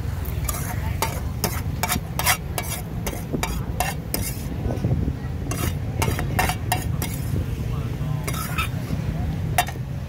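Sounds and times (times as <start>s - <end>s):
metal utensil scraping pan: 0.4s - 4.6s, 5.5s - 7.4s, 8.2s - 9.0s, 9.6s - 9.9s
steady low rumble: 2.8s - 10.0s.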